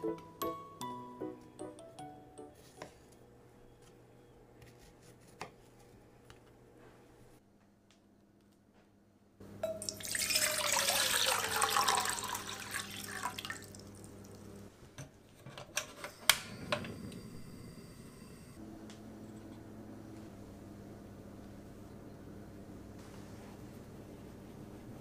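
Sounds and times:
water pouring into saucepan: 9.8s - 14.4s.

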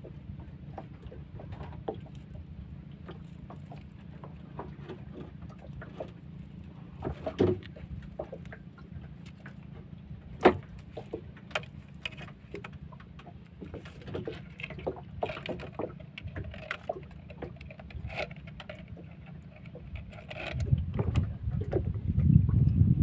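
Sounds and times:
low steady rumble: 0.0s - 23.0s
fishing net being handled: 3.0s - 20.7s.

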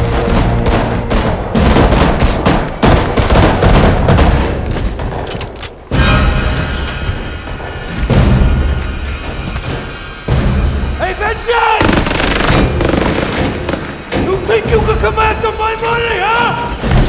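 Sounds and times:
rapid gunfire bursts: 0.0s - 5.2s, 11.8s - 14.1s
film score music: 0.0s - 17.0s.

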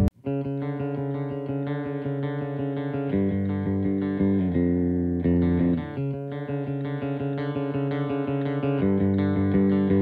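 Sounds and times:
plucked guitar with bass: 0.0s - 10.0s.

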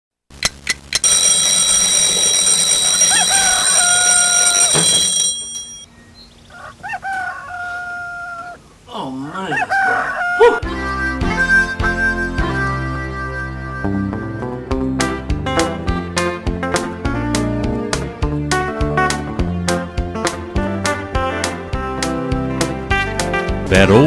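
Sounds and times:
alarm clock bells ringing: 1.0s - 5.9s
rooster crowing: 2.8s - 5.4s, 6.5s - 8.6s, 9.4s - 10.7s.

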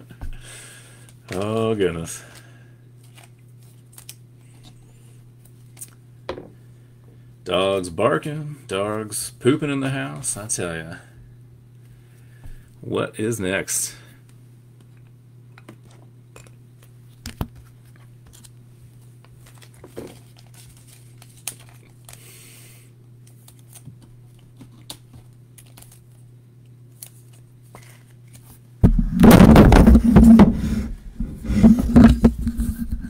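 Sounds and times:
low electrical hum: 0.0s - 33.0s
trading cards clicking and rustling: 16.8s - 18.6s, 19.2s - 22.2s, 23.2s - 26.2s, 26.9s - 28.6s
microphone dropped and clattering: 28.8s - 30.6s.

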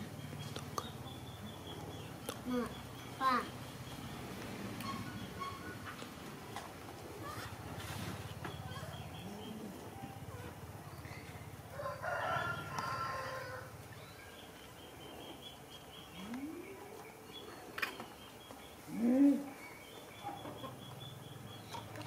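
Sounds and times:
rooster crowing: 11.7s - 13.8s.

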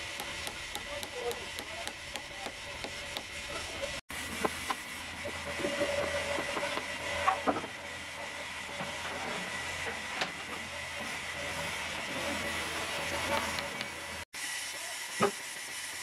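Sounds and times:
sawmill machinery humming: 0.0s - 16.0s.

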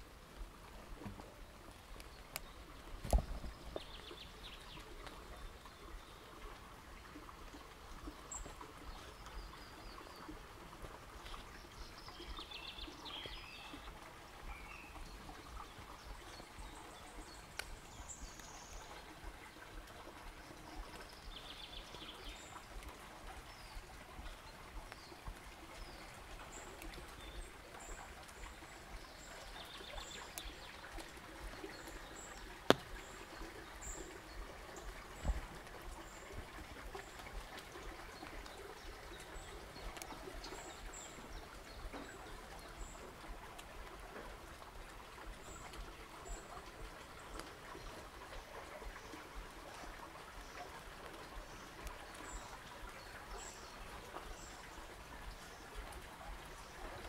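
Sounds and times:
stream trickling: 0.0s - 57.0s
birds chirping: 11.2s - 43.1s.

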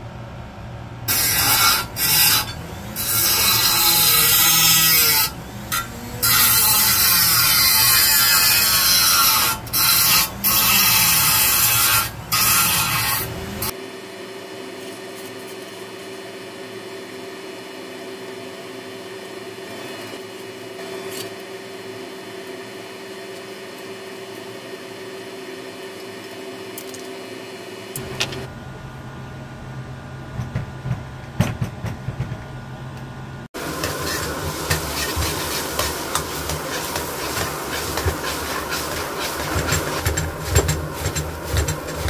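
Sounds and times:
power grinder grinding metal: 1.1s - 13.8s, 33.6s - 42.0s.

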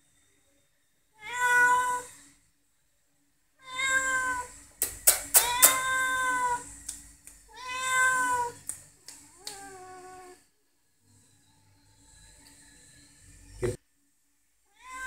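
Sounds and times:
cat meowing: 1.2s - 2.2s, 3.6s - 4.6s, 5.2s - 6.8s, 7.5s - 8.7s, 9.3s - 10.4s, 14.7s - 15.0s.

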